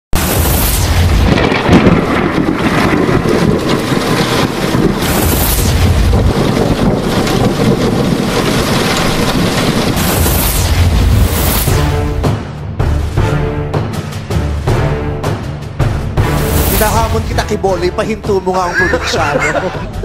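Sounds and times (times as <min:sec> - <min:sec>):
rumbling and hissing: 0:00.2 - 0:12.0.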